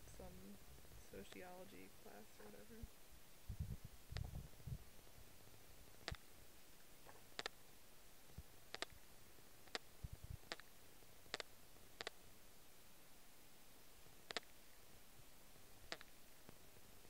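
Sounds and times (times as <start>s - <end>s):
soft low thumps: 3.4s - 4.8s.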